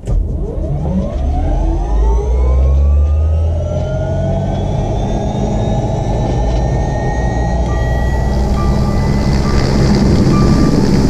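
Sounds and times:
heavy low hum: 0.0 - 11.0
helicopter turbine whine: 4.0 - 11.0.

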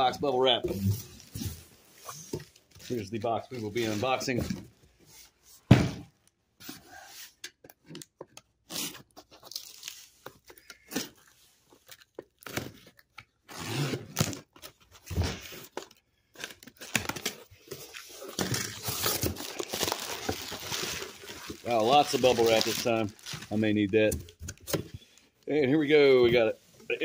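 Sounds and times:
packing tape tearing: 12.4 - 14.7, 15.4 - 23.6
bubble wrap crinkling: 16.8 - 25.2.

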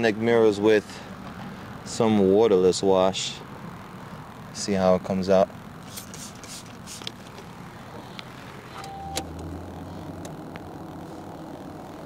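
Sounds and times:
spray bottle hissing: 5.8 - 7.2
short beep: 8.8 - 9.2.

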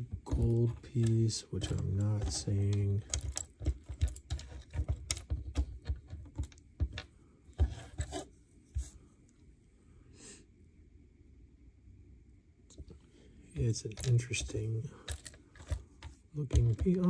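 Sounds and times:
plastic pieces clicking and rattling: 0.3 - 7.1, 13.7 - 17.0.

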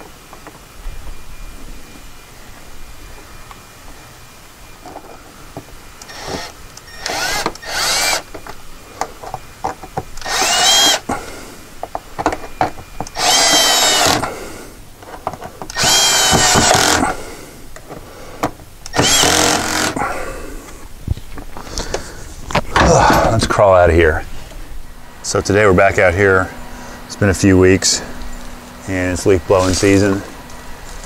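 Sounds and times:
cordless drill driving screws: 6.0 - 8.3, 10.2 - 11.1, 13.0 - 14.3, 15.7 - 17.2, 18.8 - 20.0.

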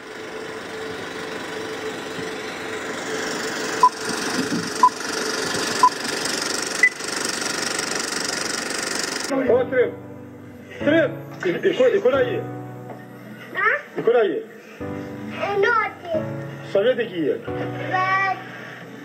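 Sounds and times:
film projector running: 0.0 - 9.3
countdown beeps: 3.8 - 4.0, 4.8 - 5.0.

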